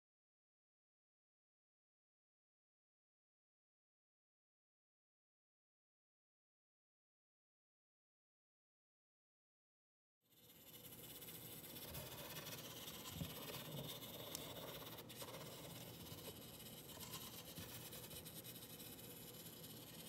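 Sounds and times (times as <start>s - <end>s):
marker scraping on paper: 10.3s - 20.0s
small servo motor running: 10.3s - 20.0s.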